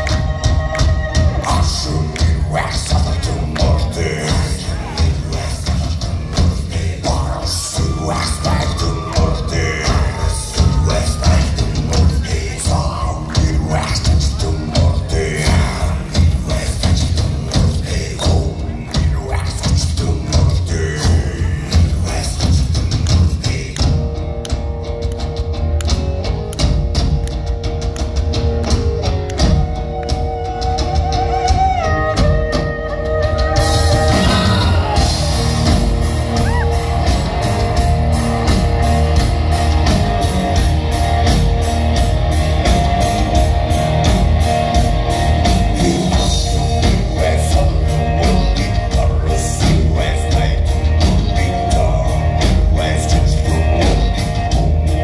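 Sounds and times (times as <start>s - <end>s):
person singing: 0.0s - 24.1s, 29.6s - 37.9s, 45.4s - 55.0s
drum kit: 0.0s - 55.0s
folk metal band playing: 0.0s - 55.0s.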